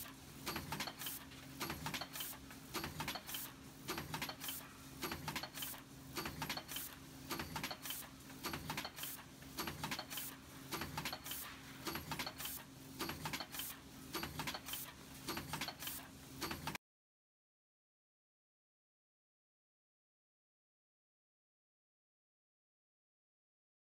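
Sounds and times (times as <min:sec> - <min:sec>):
press clicking and clacking: 0:00.0 - 0:16.8.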